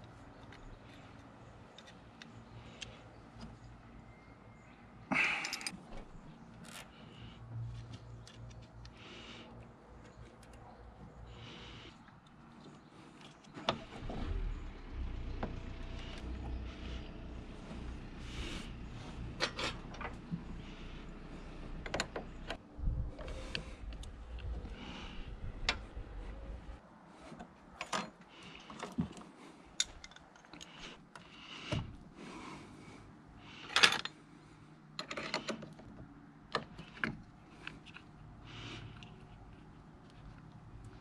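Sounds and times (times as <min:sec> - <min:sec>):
hand tools and metal parts clinking: 0:05.1 - 0:07.2, 0:18.4 - 0:20.8, 0:27.3 - 0:31.2, 0:33.6 - 0:34.3, 0:35.0 - 0:41.0
low hum: 0:13.9 - 0:26.8.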